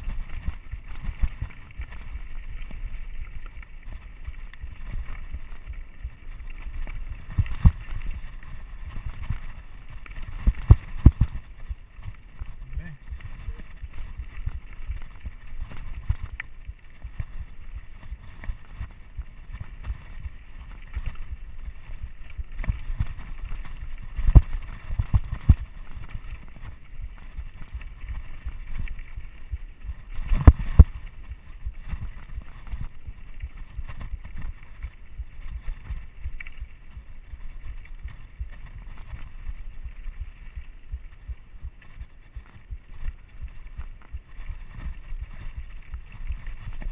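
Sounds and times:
bike tyres rumbling over stones: 0.0 - 46.9
bike knocking over rocks: 3.4 - 18.6.

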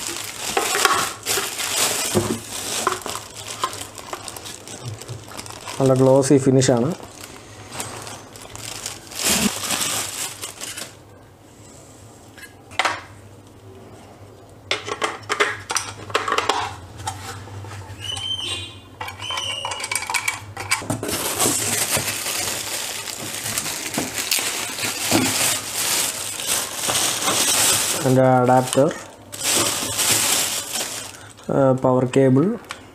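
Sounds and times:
plastic wrapping crinkling: 0.0 - 11.0, 20.9 - 31.5.

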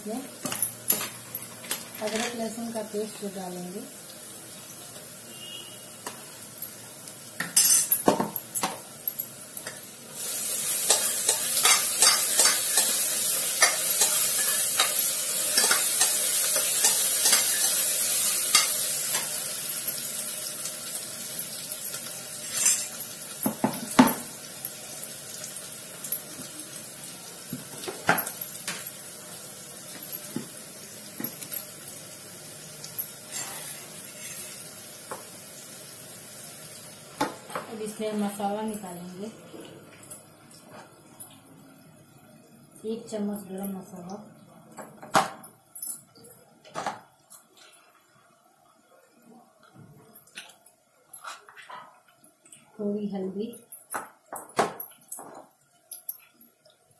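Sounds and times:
paste sizzling in hot oil: 8.8 - 38.6.

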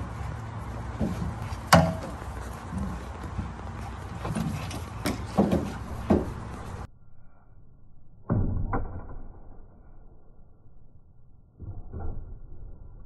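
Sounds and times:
background noise: 0.0 - 13.0
dogs knocking and thudding: 0.9 - 6.9.

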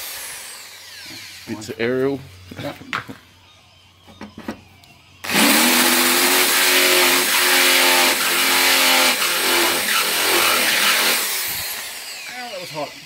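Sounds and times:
drill cutting sheet metal: 0.0 - 1.8, 5.2 - 13.0
electric drill motor whine: 0.0 - 13.0.

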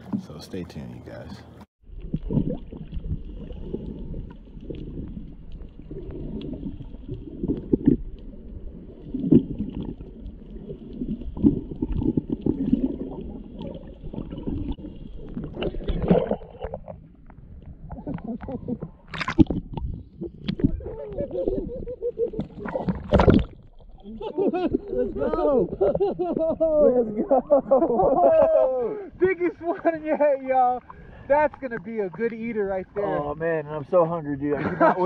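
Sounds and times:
water rushing and splashing: 1.8 - 21.8, 22.4 - 25.8
underwater rumbling and gurgling: 1.8 - 29.3.

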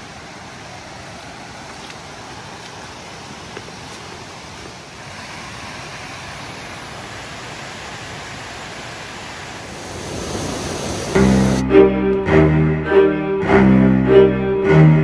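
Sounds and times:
waterfall rushing: 0.0 - 11.6.

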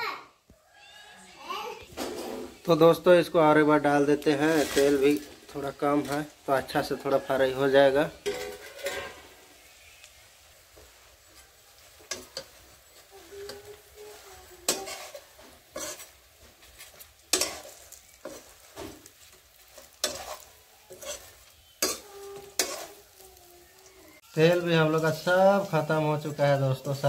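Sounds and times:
faint frying sizzle: 0.1 - 27.0
metal spoon scraping pan: 4.2 - 9.9, 10.7 - 23.2.

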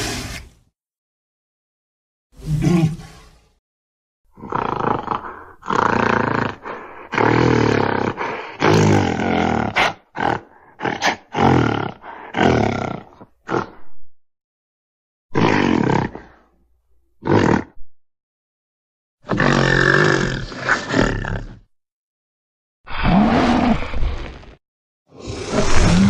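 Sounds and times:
dinosaur roaring: 2.4 - 3.4, 4.4 - 13.8, 25.2 - 26.0.

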